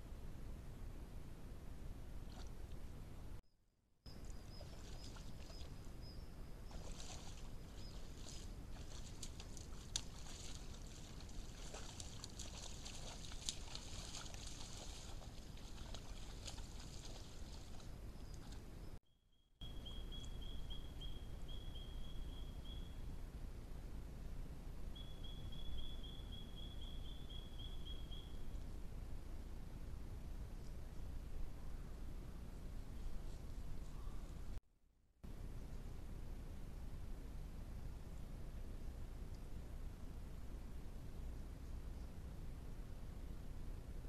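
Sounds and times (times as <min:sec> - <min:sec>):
water splashing and sloshing: 0:04.2 - 0:05.8, 0:06.7 - 0:18.7.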